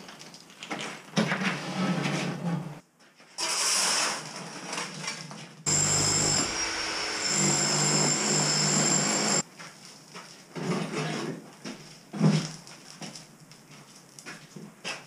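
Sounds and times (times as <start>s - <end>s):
power tool on brick: 5.7s - 9.4s.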